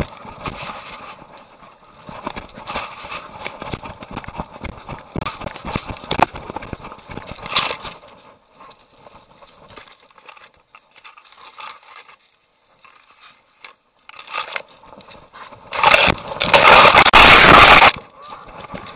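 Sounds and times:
camera scraping and knocking: 2.1s - 7.9s, 15.6s - 18.0s.

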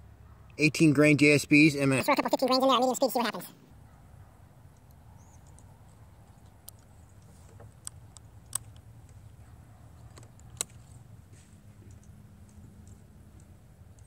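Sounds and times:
air rifle clicks: 6.6s - 9.3s, 10.0s - 11.0s.

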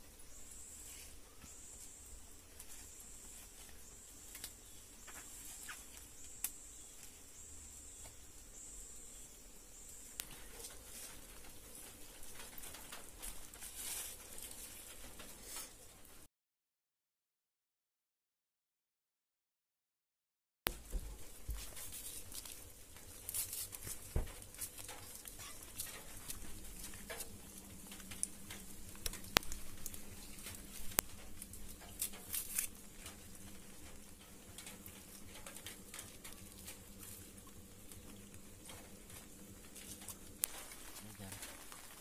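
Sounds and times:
banana leaf rustling and crinkling: 0.0s - 9.2s, 9.8s - 16.2s, 20.7s - 42.0s
leaf snapping: 4.3s - 7.2s, 20.7s - 37.2s.

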